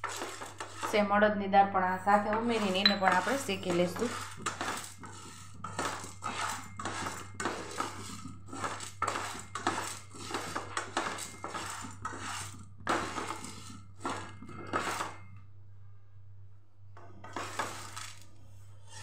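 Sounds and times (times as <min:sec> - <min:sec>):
lentils rattling in frying pan: 0:00.0 - 0:00.9, 0:02.3 - 0:15.2, 0:17.3 - 0:18.3
spatula stirring: 0:00.0 - 0:01.2, 0:01.8 - 0:15.4, 0:17.2 - 0:19.0.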